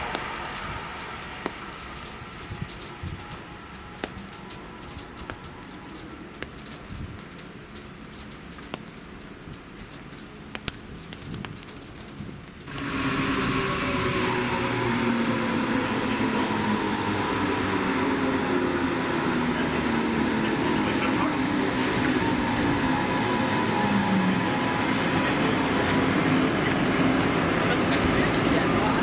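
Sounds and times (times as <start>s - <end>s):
electric train passing: 0.0s - 8.2s, 12.7s - 29.0s
rain drop clicks: 0.0s - 13.0s
rain falling: 0.0s - 29.0s
electric drive whine: 12.6s - 29.0s.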